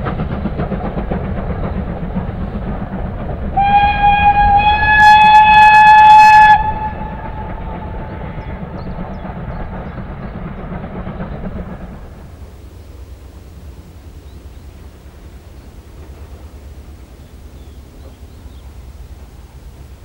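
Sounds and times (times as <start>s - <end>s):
train rumbling: 0.0s - 20.0s
steam locomotive whistle: 3.5s - 9.0s.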